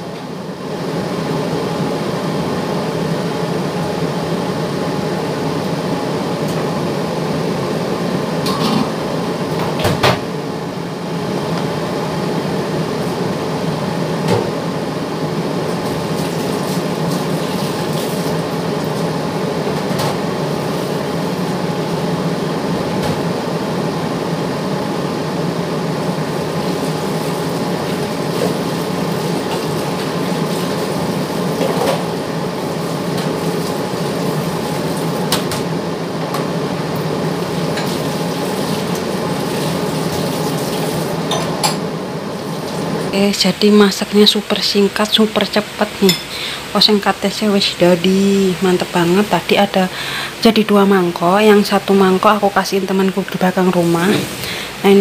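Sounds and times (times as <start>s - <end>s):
water rushing at sink: 37.5s - 41.2s
dishes clinking: 46.0s - 46.4s.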